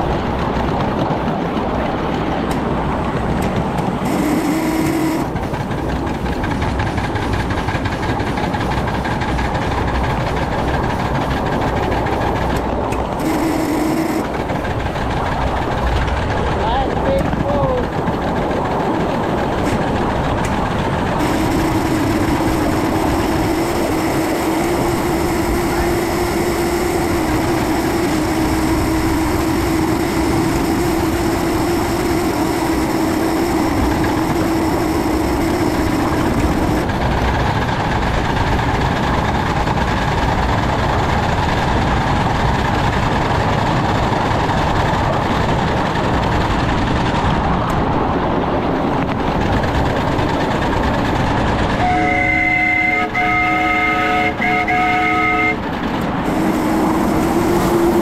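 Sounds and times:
steam locomotive running: 0.0s - 58.0s
steady hum: 2.4s - 58.0s
steam whistle blasts: 21.2s - 36.8s, 51.8s - 55.6s, 56.3s - 58.0s.

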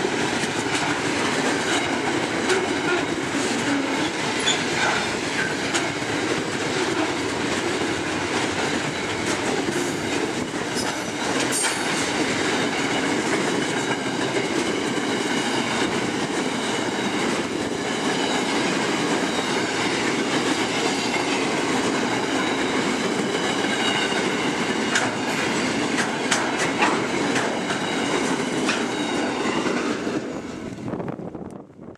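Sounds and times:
train wheels rumbling on rails: 0.0s - 31.9s
high wheel squeal: 2.6s - 7.2s, 15.1s - 20.1s, 22.1s - 25.9s, 27.2s - 30.4s.

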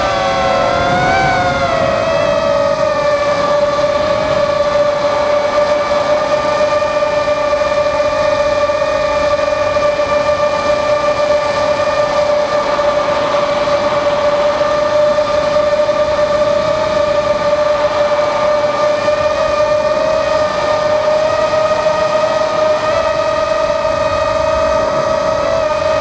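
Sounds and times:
rushing air: 0.0s - 5.2s
quadcopter motors whining: 0.0s - 26.0s.

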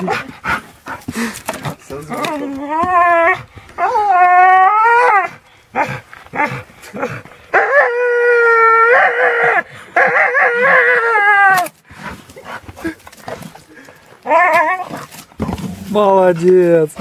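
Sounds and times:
dog whining and howling: 2.1s - 11.7s, 14.2s - 15.1s.

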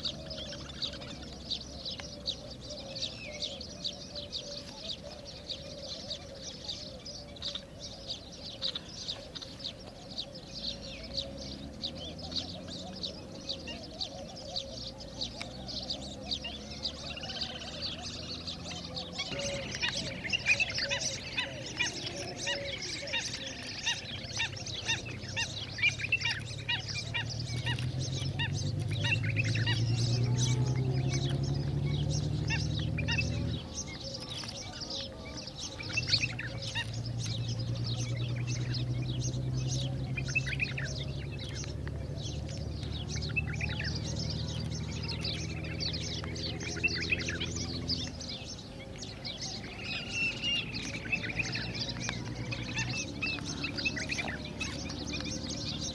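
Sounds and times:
small birds chirping: 0.0s - 55.9s.

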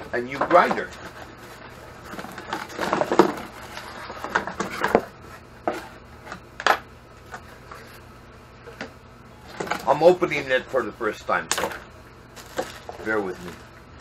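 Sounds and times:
cardboard rustling and scraping: 0.3s - 6.3s, 12.3s - 13.8s.

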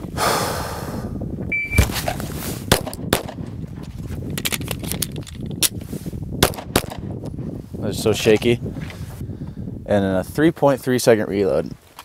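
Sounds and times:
pistol shots: 2.7s - 3.4s, 6.4s - 7.0s
magazine being changed: 4.2s - 5.8s.

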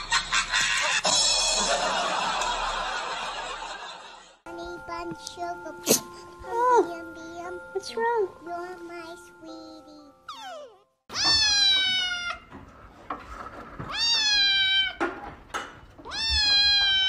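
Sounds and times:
kitten meowing: 10.3s - 12.4s, 13.9s - 15.0s, 16.0s - 17.0s.

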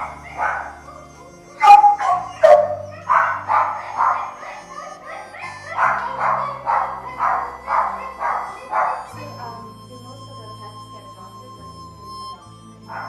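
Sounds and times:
dogs barking: 0.0s - 9.6s, 12.8s - 13.0s.

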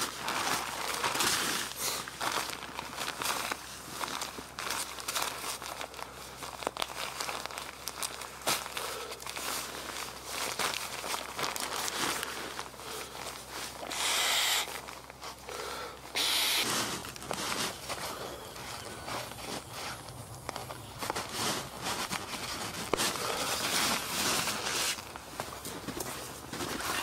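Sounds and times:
nylon fabric crinkling: 0.0s - 27.0s
brief rushing hisses: 13.9s - 14.8s, 16.2s - 17.0s.

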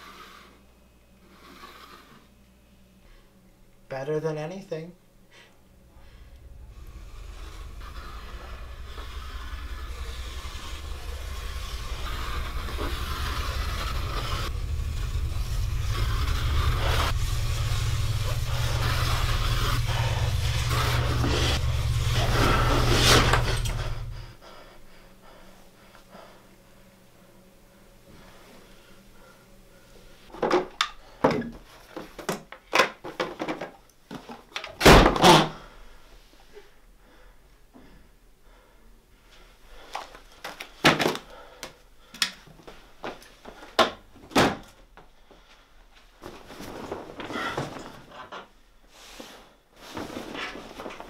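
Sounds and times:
low rumbling drone: 5.6s - 25.4s
heavy thuds: 5.8s - 24.4s.

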